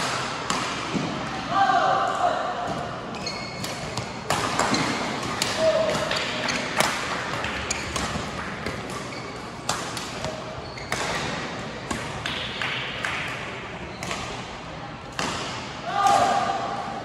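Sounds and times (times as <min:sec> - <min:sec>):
shoes squeaking on court floor: 0:02.7 - 0:05.4, 0:06.1 - 0:11.4
rackets hitting shuttlecock: 0:03.5 - 0:14.4, 0:15.0 - 0:16.6.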